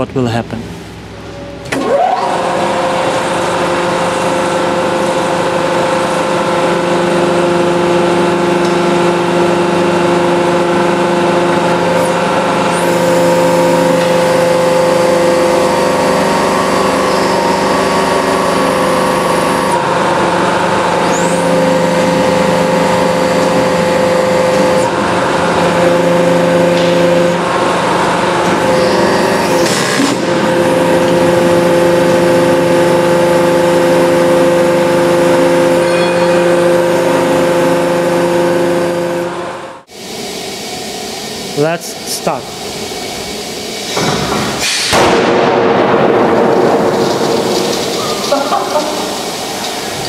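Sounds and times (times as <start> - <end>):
hydraulic pump motor humming: 0.0 - 45.2, 46.4 - 50.0.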